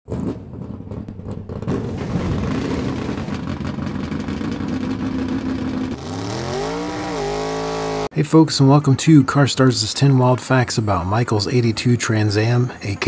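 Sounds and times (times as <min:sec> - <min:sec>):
car engine revving high: 0:04.9 - 0:08.1.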